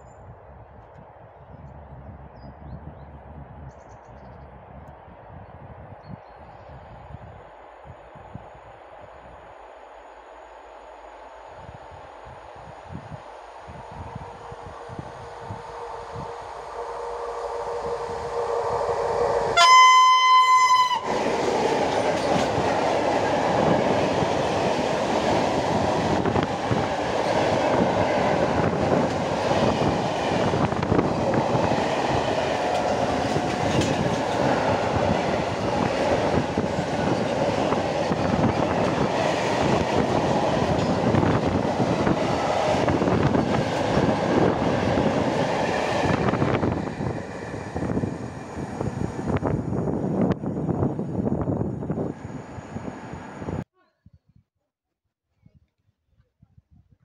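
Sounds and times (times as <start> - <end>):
locomotive horn: 14.2 - 21.3
train wagons clattering on rails: 21.8 - 23.8, 32.1 - 35.9, 36.5 - 41.6.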